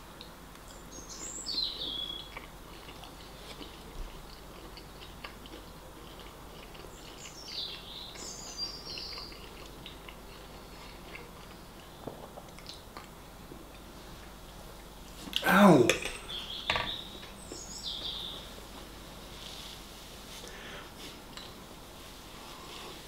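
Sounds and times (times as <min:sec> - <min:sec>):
chewing and cutlery clicks: 0:02.3 - 0:07.8, 0:08.9 - 0:13.1.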